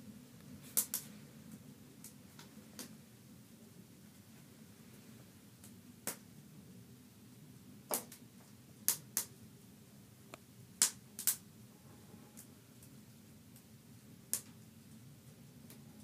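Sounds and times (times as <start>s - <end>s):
wood fire crackling and popping: 0.3s - 4.3s, 5.4s - 6.4s, 7.3s - 9.4s, 10.2s - 11.5s, 12.4s - 15.9s.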